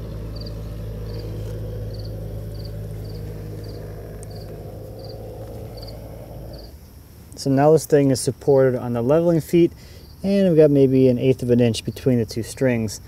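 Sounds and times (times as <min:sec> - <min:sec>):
low machine hum: 0:00.0 - 0:07.8
crickets chirping: 0:00.0 - 0:13.0.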